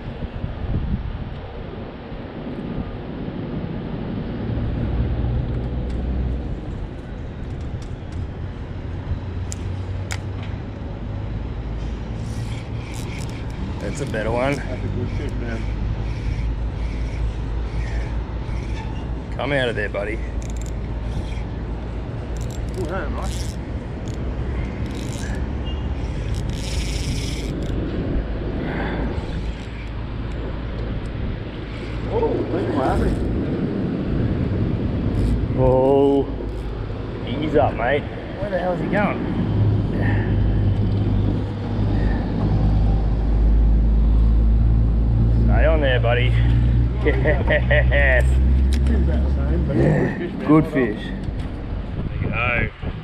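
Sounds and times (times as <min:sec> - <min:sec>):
road traffic rumble: 0:00.0 - 0:53.0
fishing reel clicking buzz: 0:12.2 - 0:18.8, 0:20.4 - 0:21.5, 0:22.3 - 0:24.2, 0:24.8 - 0:25.4, 0:26.0 - 0:27.8, 0:29.2 - 0:30.4, 0:31.7 - 0:32.1, 0:32.8 - 0:33.2, 0:35.1 - 0:35.4.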